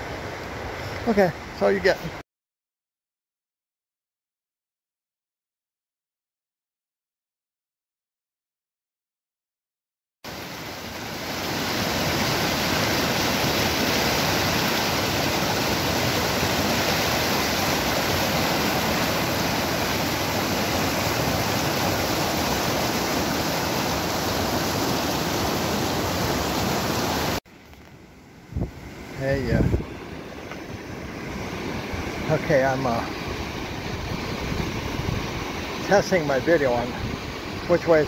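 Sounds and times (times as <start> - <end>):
whitewater rushing over rocks: 10.3 - 27.4, 29.2 - 38.0.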